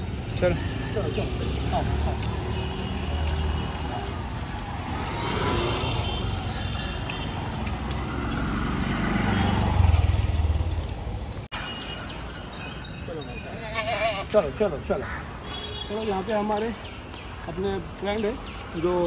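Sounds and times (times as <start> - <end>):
street traffic noise: 0.0 - 19.0
vehicle engine passing: 0.7 - 6.4, 7.4 - 11.2.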